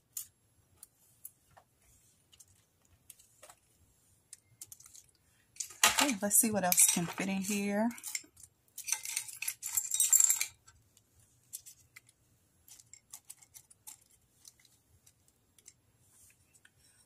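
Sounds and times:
beads rattling in glass jar: 4.6 - 10.6.

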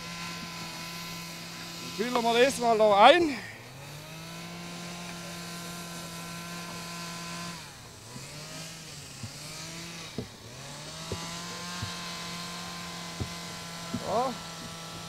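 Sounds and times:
engine humming steadily: 0.0 - 15.0
light knocks: 13.1 - 14.8.

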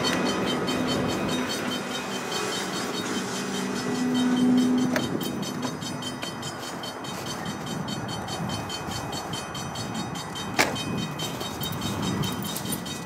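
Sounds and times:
train wheels rumbling over rails: 0.0 - 13.0.

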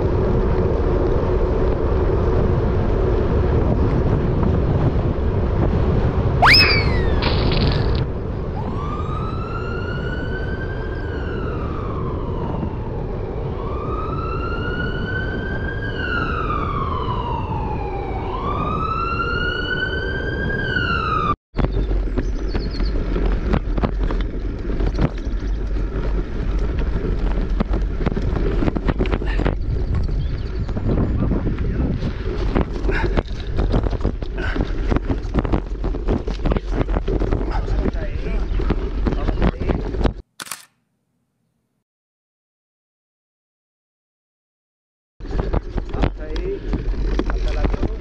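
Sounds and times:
wind buffeting microphone: 0.0 - 40.2, 45.2 - 48.0
siren wailing: 6.4 - 7.3, 8.4 - 21.4.

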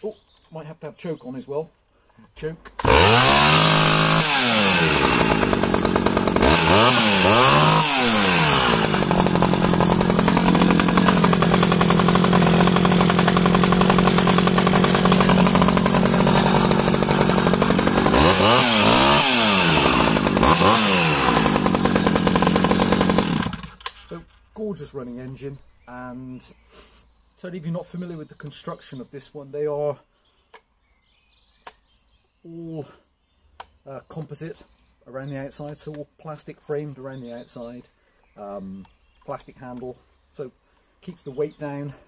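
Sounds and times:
chainsaw revving and idling: 2.6 - 25.4.

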